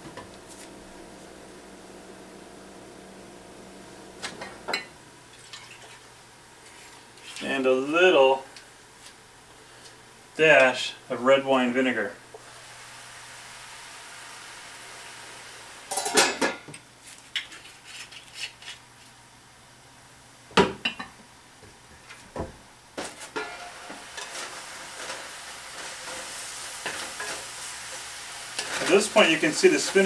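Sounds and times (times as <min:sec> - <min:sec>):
vegetables sizzling in pan: 0:12.3 - 0:16.4, 0:23.1 - 0:30.0
cookware clattering: 0:15.9 - 0:16.7.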